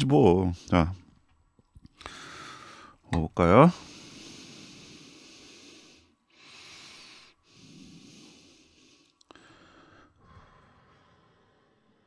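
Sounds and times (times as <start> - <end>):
person breathing through nose: 2.0 - 3.0, 3.8 - 12.0.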